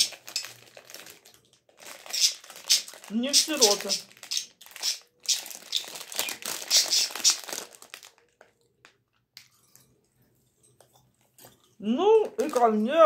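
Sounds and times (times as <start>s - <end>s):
plastic bag crinkling: 0.0s - 9.2s, 12.2s - 13.0s.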